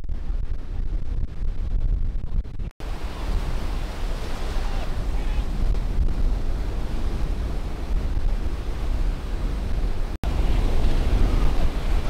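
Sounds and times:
wind rumble on microphone: 0:00.0 - 0:12.0
waves breaking: 0:02.8 - 0:12.0.

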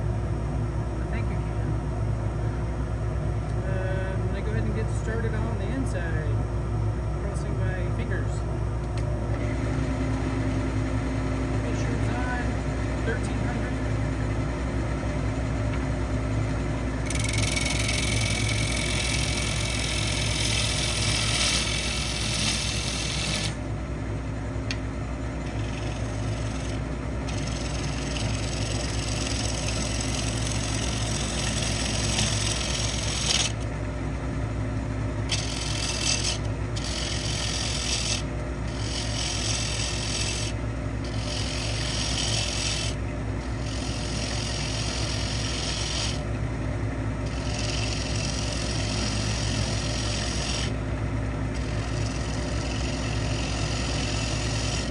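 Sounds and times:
wood lathe humming: 0:09.2 - 0:54.9
tool hissing on wood: 0:17.0 - 0:23.6, 0:25.4 - 0:33.6, 0:35.3 - 0:46.2, 0:47.3 - 0:50.8, 0:51.6 - 0:54.9.

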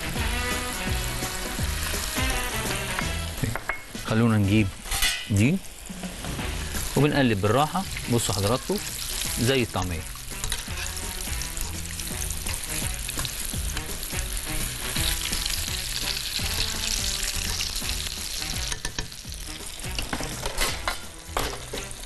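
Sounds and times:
food deep-frying in hot oil: 0:00.0 - 0:03.6, 0:04.3 - 0:22.0.

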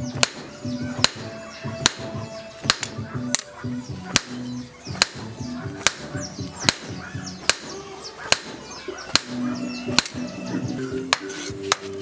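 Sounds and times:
sharp cracks: 0:00.1 - 0:09.4.

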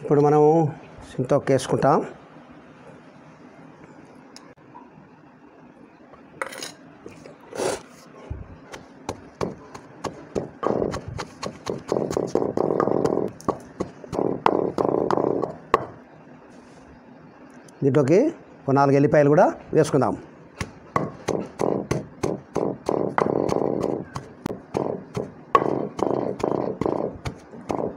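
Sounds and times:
pestle scraping stone mortar: 0:08.7 - 0:15.9, 0:20.6 - 0:27.9
pestle pounding paste in mortar: 0:08.7 - 0:16.0, 0:20.6 - 0:27.9.

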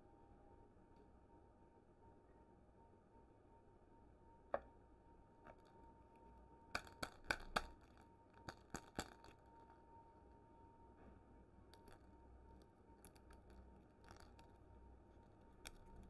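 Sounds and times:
plastic wrapper clicks and crackles: 0:06.8 - 0:09.5, 0:15.6 - 0:16.0.

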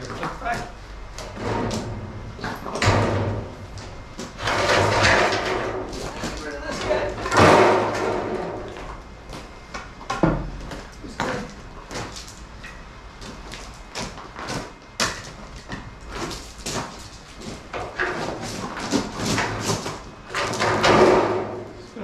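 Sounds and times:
heavy thump: 0:01.2 - 0:08.9.

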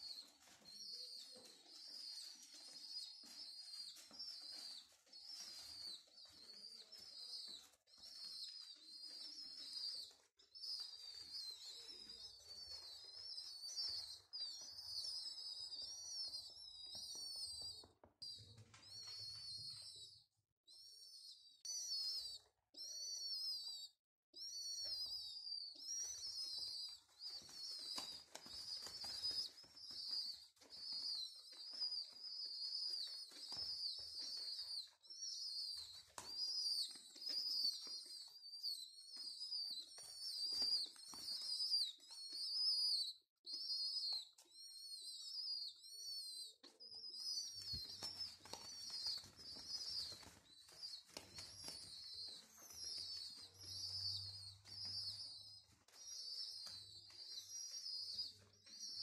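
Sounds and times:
pigeon squab squeaking peeps: 0:00.0 - 0:59.0.

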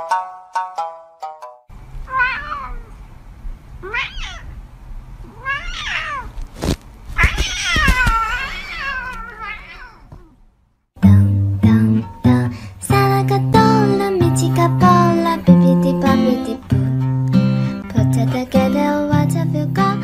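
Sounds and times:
cat meowing: 0:02.1 - 0:03.0, 0:03.8 - 0:04.6, 0:05.2 - 0:06.4, 0:07.1 - 0:10.4.

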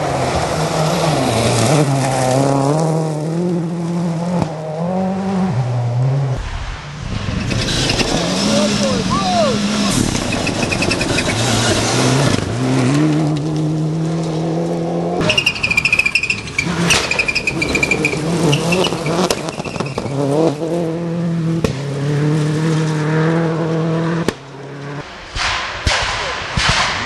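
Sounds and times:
rally car engines at high revs: 0:00.0 - 0:25.3
gravel spraying under tyres: 0:15.2 - 0:20.7.

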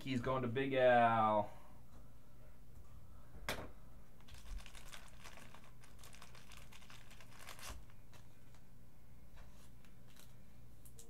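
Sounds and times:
plastic wrapping crinkling: 0:04.2 - 0:08.6, 0:09.6 - 0:10.4.

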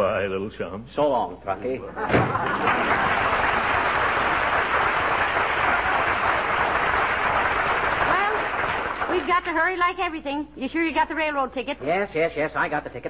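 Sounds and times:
audience applauding: 0:02.2 - 0:09.5.

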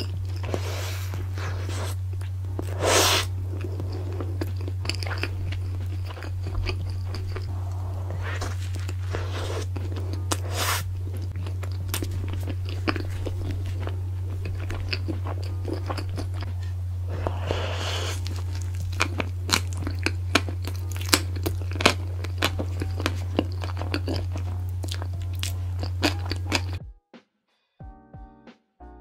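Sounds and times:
low hum: 0:00.0 - 0:26.8
woman chewing: 0:00.0 - 0:26.8
slurp: 0:02.6 - 0:05.3, 0:07.2 - 0:13.9, 0:15.8 - 0:19.7.

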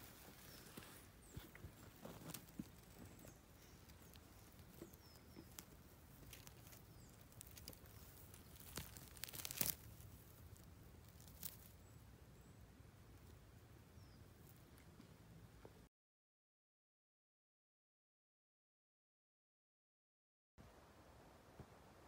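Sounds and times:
rustling of moss and needles: 0:00.0 - 0:13.6
soft tearing clicks: 0:05.5 - 0:10.0.

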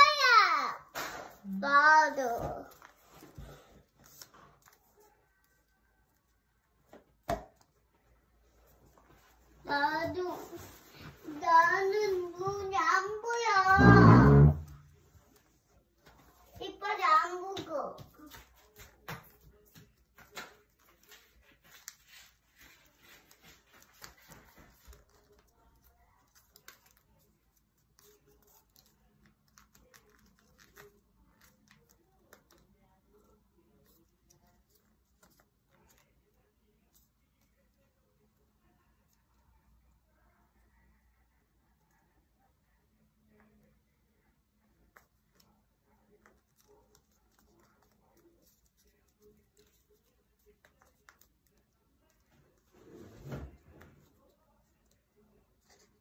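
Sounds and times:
paper being folded: 0:02.6 - 0:06.3, 0:18.1 - 0:37.7, 0:45.1 - 0:56.0.

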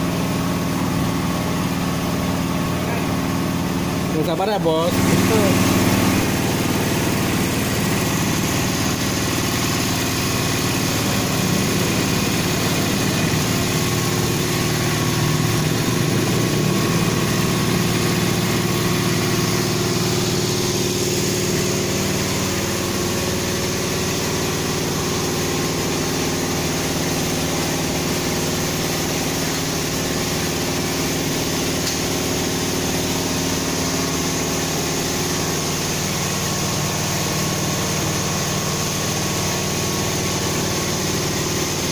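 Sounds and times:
diesel truck engine idling: 0:00.0 - 0:31.8.

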